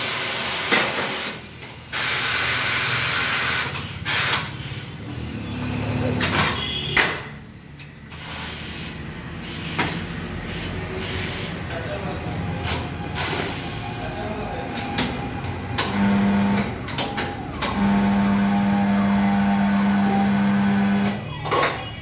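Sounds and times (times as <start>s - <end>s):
compressed air hissing: 8.1s - 11.7s.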